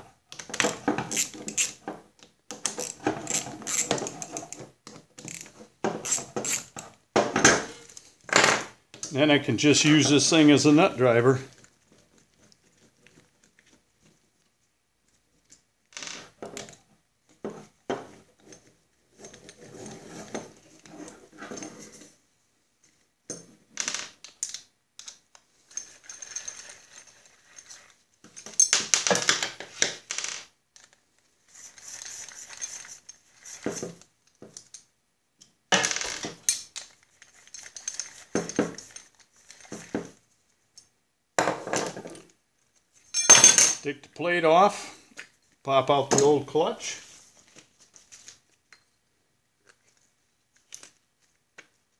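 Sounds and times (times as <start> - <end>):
metallic clinking and rattling: 43.1 - 43.8
steel parts and tools clattering: 43.1 - 43.8.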